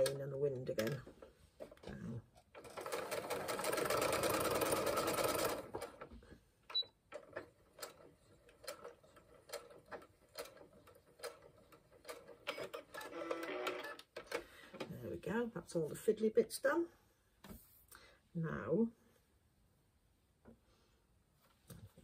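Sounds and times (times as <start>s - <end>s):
sewing machine stitching: 2.5s - 6.1s, 6.7s - 14.0s.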